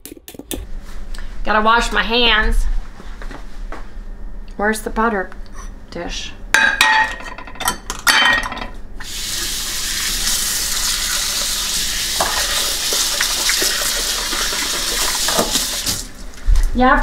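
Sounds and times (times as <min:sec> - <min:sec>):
dishes and utensils clinking: 0:06.6 - 0:08.8
kitchen tap water running: 0:09.0 - 0:16.2.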